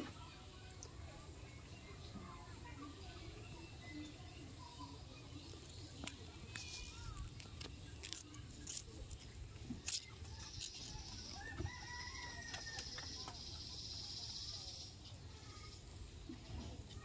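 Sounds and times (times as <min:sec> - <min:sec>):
rooster crowing: 0:11.3 - 0:12.9.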